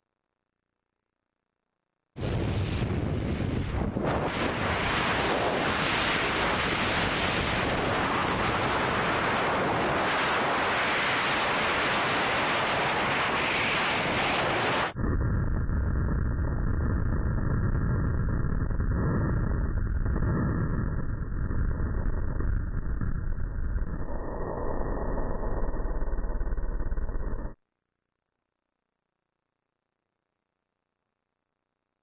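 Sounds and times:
wind rushing over microphone: 2.2s - 27.6s.

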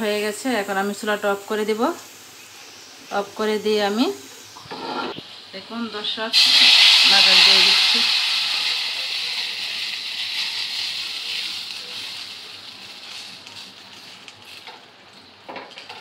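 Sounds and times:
hot oil sizzling: 0.0s - 16.0s.

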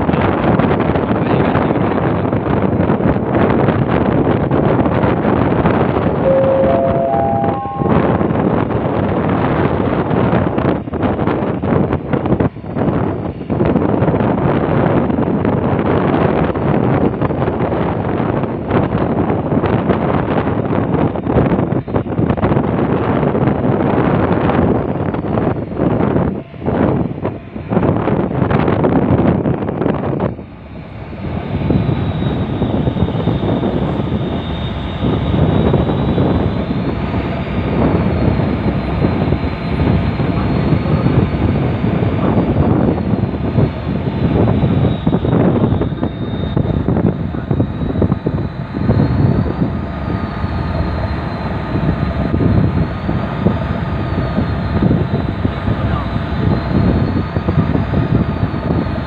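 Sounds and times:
wind buffeting microphone: 0.0s - 6.4s, 7.5s - 59.0s
faint steady tones: 6.2s - 8.4s
machinery drone: 6.2s - 8.9s, 25.0s - 58.8s.

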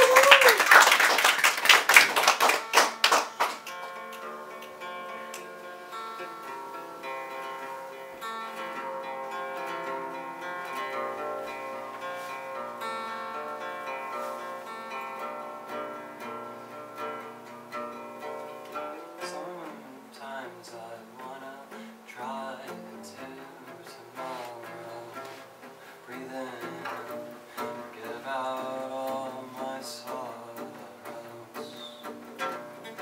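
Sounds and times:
audience applause: 0.0s - 4.0s
solo acoustic guitar: 2.3s - 33.0s.

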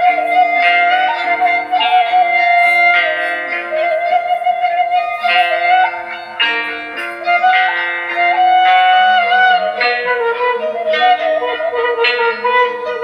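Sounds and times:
plucked string chords: 0.0s - 13.0s
wavering lead melody: 0.0s - 13.0s.

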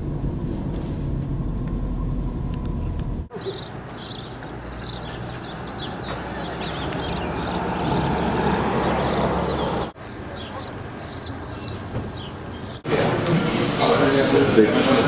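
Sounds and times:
rushing traffic: 0.0s - 15.0s
birds chirping: 2.2s - 12.9s.

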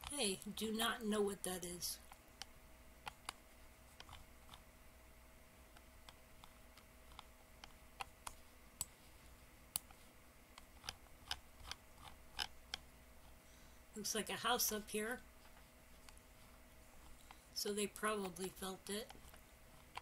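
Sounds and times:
faint steady hum: 0.0s - 20.0s
computer mouse clicks: 2.0s - 4.6s, 5.7s - 9.0s, 9.7s - 12.9s, 18.2s - 20.0s.

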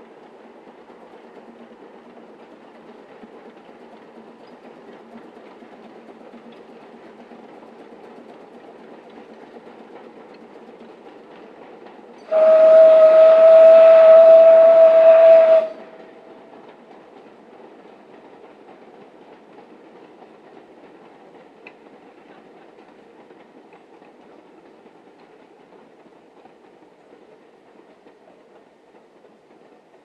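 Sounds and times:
distant steam locomotive: 0.0s - 30.0s
steam whistle blast: 12.3s - 15.9s.

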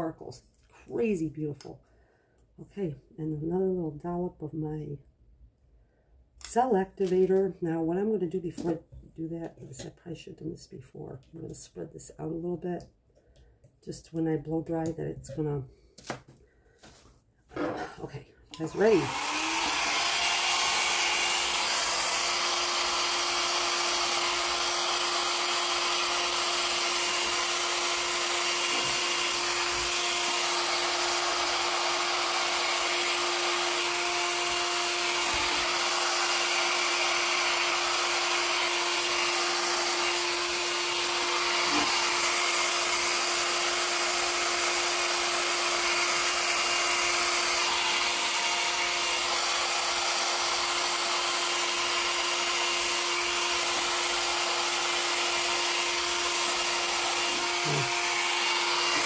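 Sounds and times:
hair dryer running: 18.5s - 59.0s.

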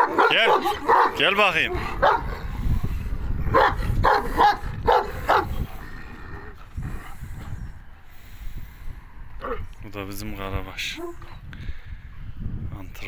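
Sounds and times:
dog barking: 0.0s - 2.4s, 3.5s - 5.7s.

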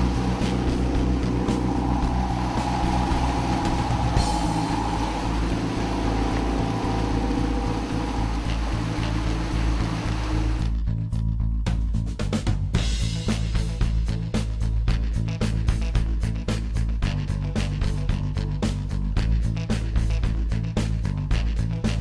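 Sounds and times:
boat engines droning: 0.0s - 10.7s
wake water rushing: 0.0s - 10.8s.

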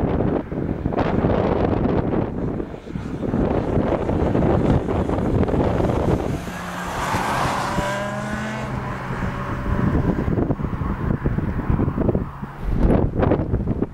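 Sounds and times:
wind buffeting microphone: 0.0s - 13.9s
motorcycle engine passing by: 2.8s - 13.0s.

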